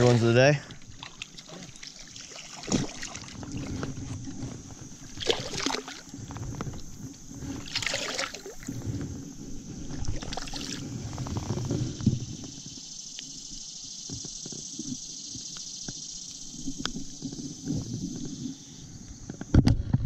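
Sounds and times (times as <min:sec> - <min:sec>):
creek water splashing: 0:00.0 - 0:08.8, 0:09.8 - 0:11.2.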